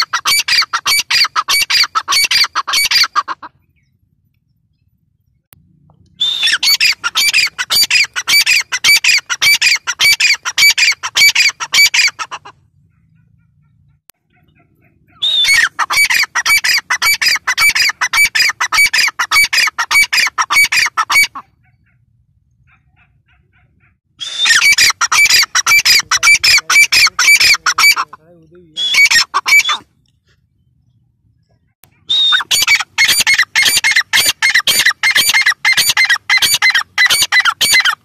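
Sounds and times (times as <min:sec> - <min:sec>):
bird calling high repeated notes: 0:06.1 - 0:30.0, 0:31.9 - 0:38.0.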